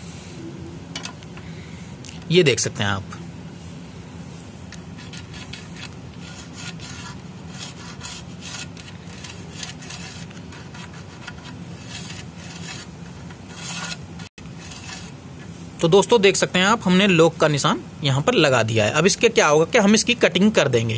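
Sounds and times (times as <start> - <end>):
steady low hum: 0.0 - 20.9
tool scratching on metal: 4.8 - 15.2.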